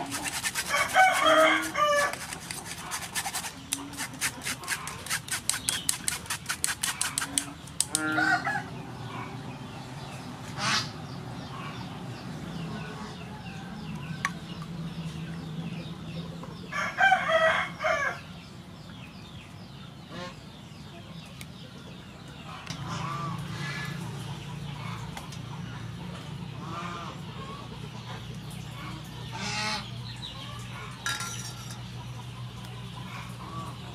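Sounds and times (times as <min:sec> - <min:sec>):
spoon scraping metal mesh strainer: 0:00.0 - 0:07.5
chickens clucking: 0:00.0 - 0:09.4, 0:20.2 - 0:33.9
metal clink: 0:31.1 - 0:31.8.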